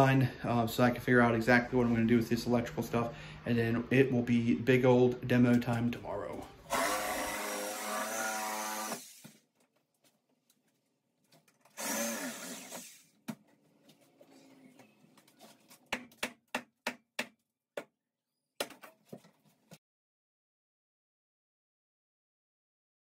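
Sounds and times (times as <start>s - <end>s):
handheld power tool motor: 6.7s - 9.4s, 11.7s - 13.1s.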